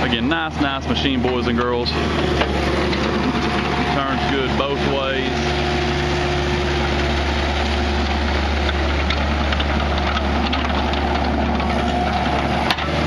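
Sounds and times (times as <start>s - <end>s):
diesel engine running: 0.0s - 13.0s
undercarriage clicks and clanks: 8.6s - 13.0s.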